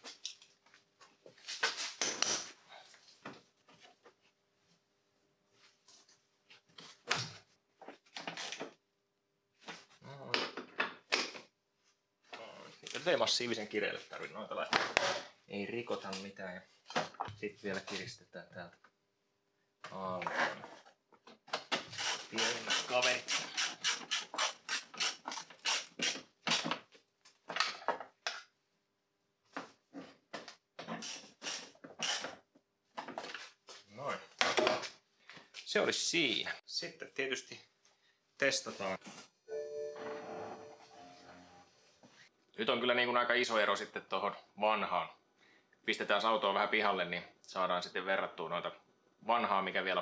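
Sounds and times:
socket ratchet strokes: 21.9s - 26.2s.

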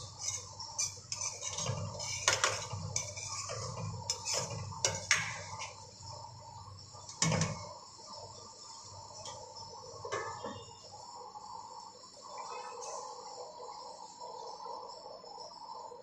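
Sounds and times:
metal spoon scraping a pan: 0.0s - 5.8s
steady high hiss: 0.0s - 16.0s.

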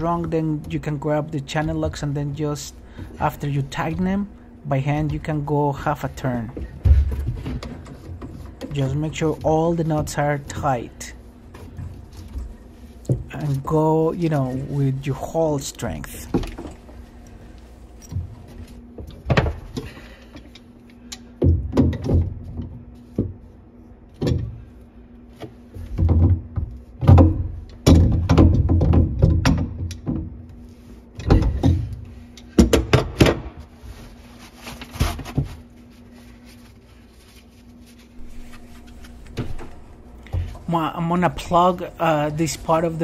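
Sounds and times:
pliers on plastic pipe knocking: 25.4s - 30.3s.

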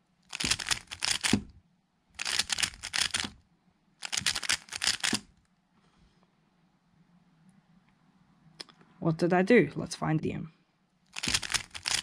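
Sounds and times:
puzzle cube rapid clicks: 0.3s - 1.5s, 2.2s - 3.4s, 4.0s - 5.3s, 11.1s - 12.0s.

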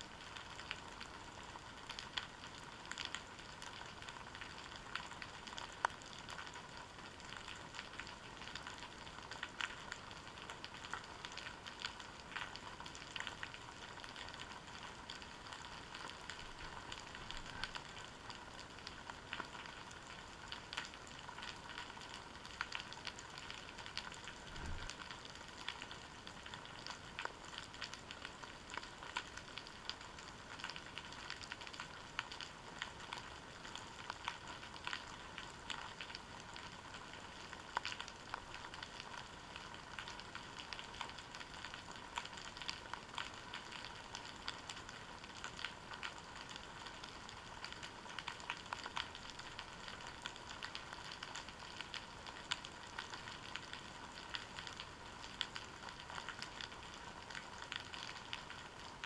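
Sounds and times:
faint underwater crackling: 0.0s - 59.0s.

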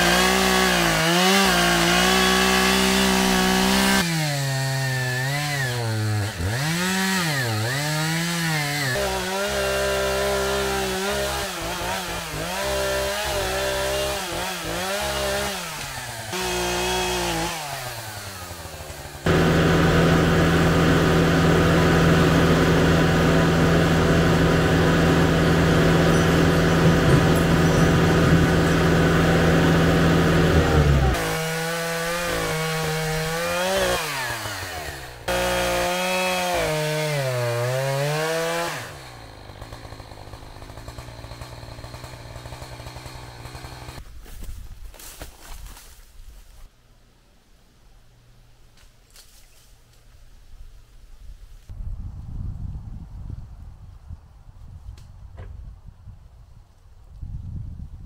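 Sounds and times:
chainsaw revving: 0.0s - 44.0s.

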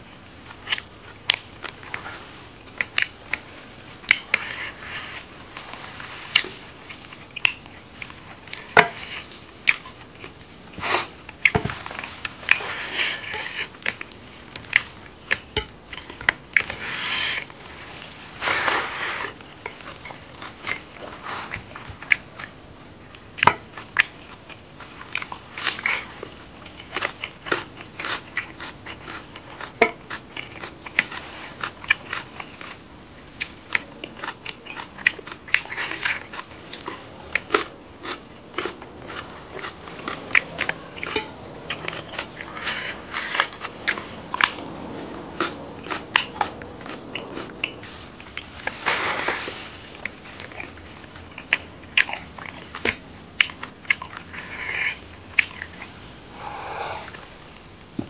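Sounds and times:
wet chewing and lip smacks: 23.4s - 49.4s, 50.0s - 57.3s.

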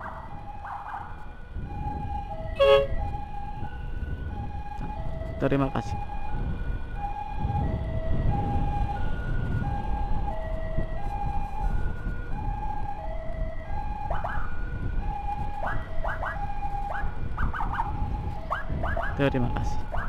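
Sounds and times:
emergency siren two-tone wail: 0.0s - 20.0s
wind rumble: 0.0s - 20.0s
short rising siren chirps: 2.4s - 3.1s.

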